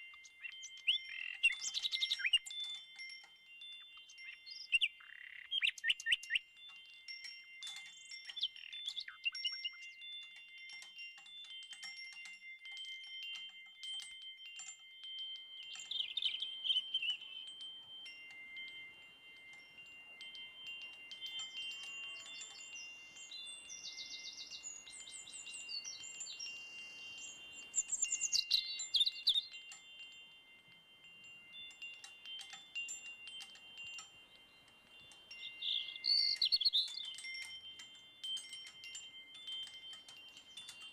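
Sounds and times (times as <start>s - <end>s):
chimes ringing: 0.0s - 40.9s
high chirps: 20.9s - 29.7s, 32.9s - 37.6s.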